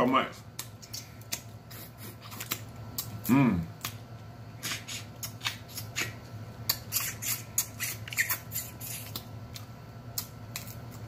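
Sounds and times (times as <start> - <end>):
wet lip smacks: 4.6 - 10.7.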